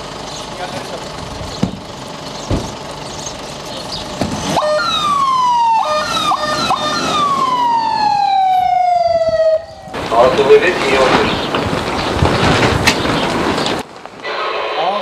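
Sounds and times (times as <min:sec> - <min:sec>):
truck engine idling: 0:00.0 - 0:08.9
electronic siren wailing: 0:04.4 - 0:10.0.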